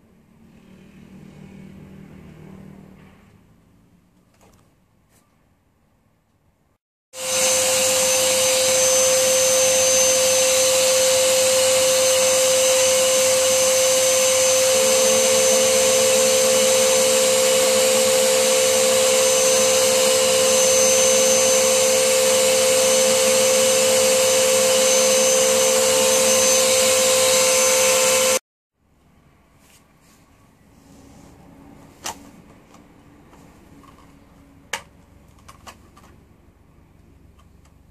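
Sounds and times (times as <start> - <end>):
vacuum cleaner whine: 7.1 - 28.4.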